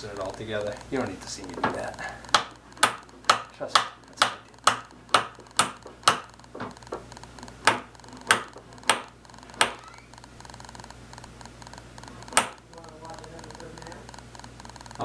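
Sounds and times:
hand tool clicking on metal wire: 0:00.1 - 0:09.9.

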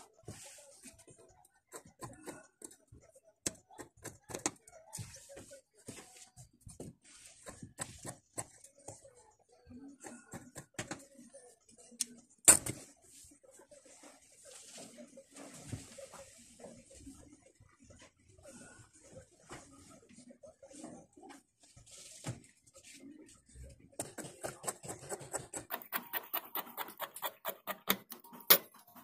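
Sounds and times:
scissors snipping fabric: 0:24.0 - 0:29.0.

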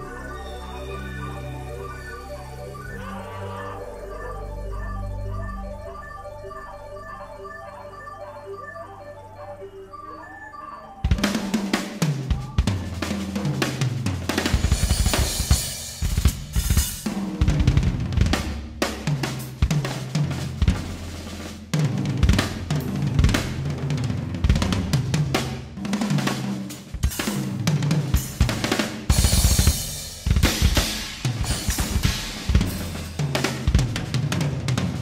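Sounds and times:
synthesizer keyboard lines: 0:00.0 - 0:14.4
rock drum kit groove: 0:11.0 - 0:35.0.

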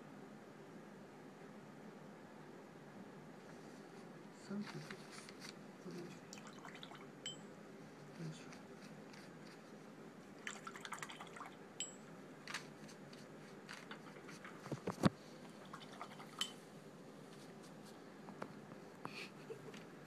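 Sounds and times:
paint brush dabbing in water dish: 0:15.5 - 0:16.6.

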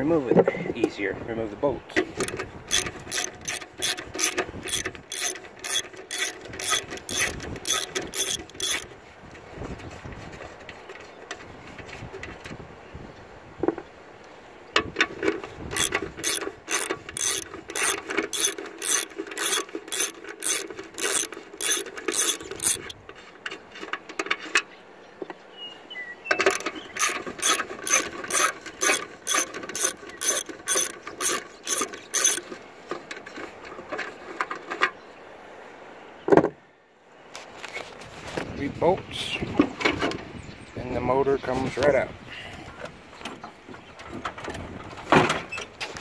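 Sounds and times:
socket ratchet clicking: 0:02.2 - 0:08.8, 0:15.7 - 0:23.0, 0:26.4 - 0:32.5.

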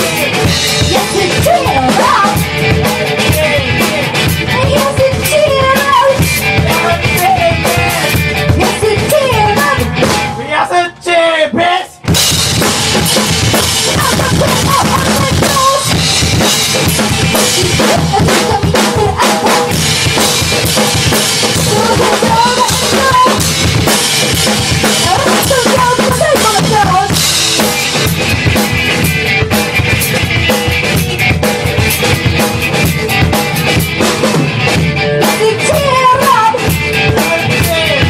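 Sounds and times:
electric guitar: 0:00.0 - 0:10.6, 0:12.0 - 0:38.0
rock band playing: 0:00.0 - 0:38.0
bass drum and snare: 0:12.1 - 0:38.0.

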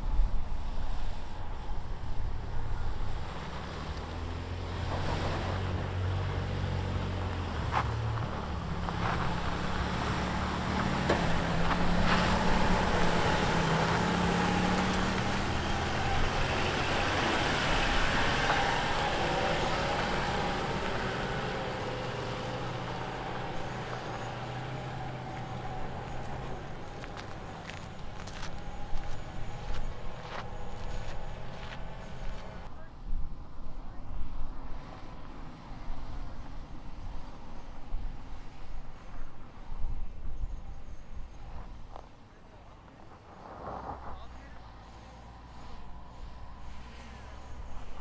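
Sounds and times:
suv engine running under load: 0:00.2 - 0:32.7.

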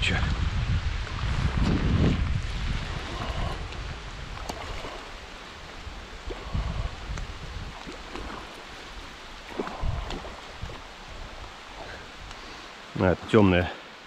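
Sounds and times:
wind buffeting microphone: 0:00.0 - 0:12.6
river water running: 0:00.0 - 0:14.0.

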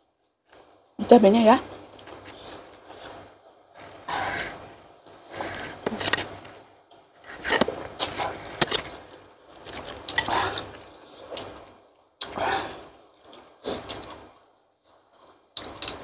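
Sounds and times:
cutlery clinking against bowl: 0:10.1 - 0:10.6.

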